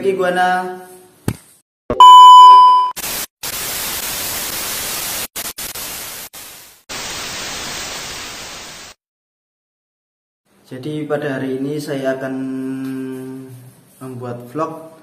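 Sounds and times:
loud electronic beep: 2.0s - 3.0s
hissing white-noise static: 3.0s - 9.0s.

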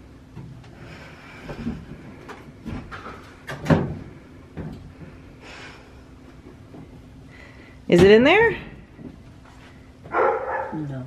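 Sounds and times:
dryer door knocks and clunks: 3.5s - 4.8s.

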